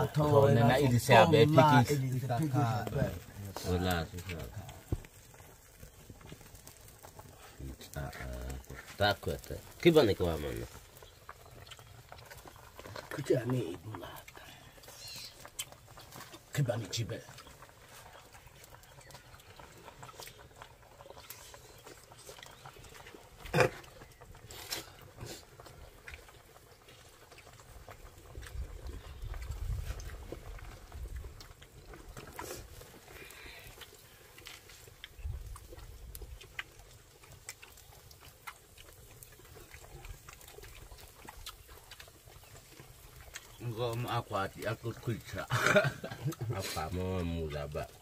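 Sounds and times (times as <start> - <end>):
wood fire crackling and popping: 0.0 - 48.0
faint chewing and lip-smacking: 0.1 - 48.0
loud throaty grunt: 23.5 - 23.9.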